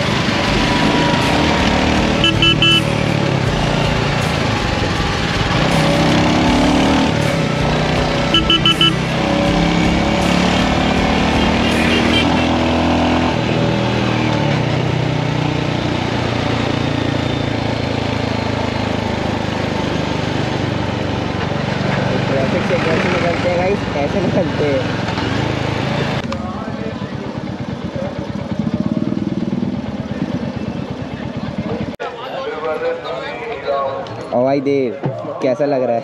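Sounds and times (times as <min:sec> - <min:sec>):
motorcycle engine running: 0:00.0 - 0:32.0
traffic noise: 0:00.0 - 0:36.0
horn beeps: 0:02.1 - 0:03.1, 0:08.2 - 0:09.2, 0:11.4 - 0:12.6
wind: 0:12.2 - 0:36.0.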